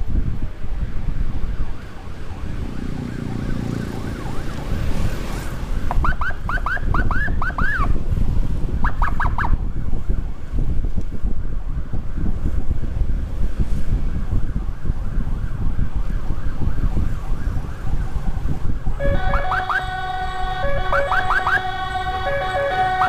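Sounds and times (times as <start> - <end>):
motorcycle road noise: 0.0 - 23.0
wind on microphone: 0.0 - 23.0
electronic siren whooping: 14.6 - 23.0.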